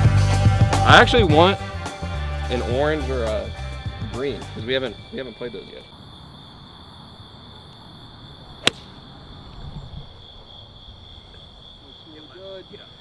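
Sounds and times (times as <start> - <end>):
insect trill: 4.6 - 13.0
golf club striking ball: 8.6 - 9.0.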